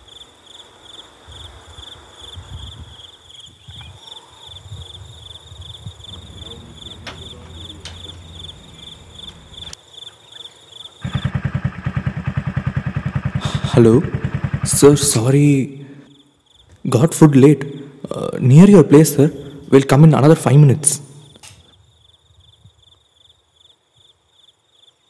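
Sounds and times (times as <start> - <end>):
crickets chirping: 0.0 - 25.0
motorcycle engine running: 6.1 - 9.7, 11.0 - 15.7.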